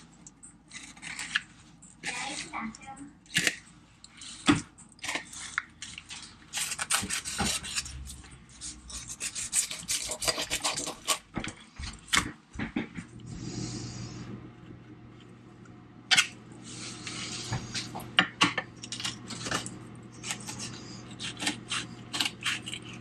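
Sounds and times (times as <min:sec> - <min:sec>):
knife cutting fish on cutting board: 0:06.5 - 0:07.9, 0:09.0 - 0:11.2.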